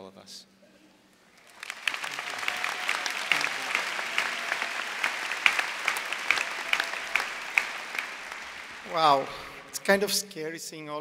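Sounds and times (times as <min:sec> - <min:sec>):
crowd applauding: 0:01.4 - 0:10.0.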